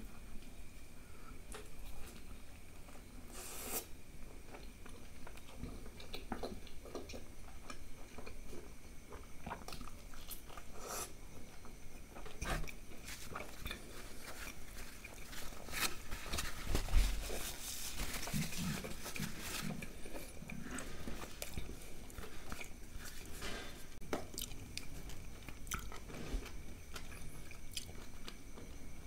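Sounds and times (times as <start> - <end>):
person chewing and lip smacking: 4.5 - 8.4, 18.3 - 23.3, 24.2 - 28.7.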